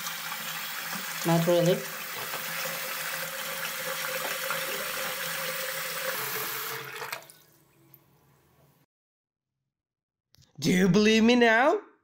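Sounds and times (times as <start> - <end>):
tap running into a sink: 0.7 - 1.3, 2.0 - 7.4.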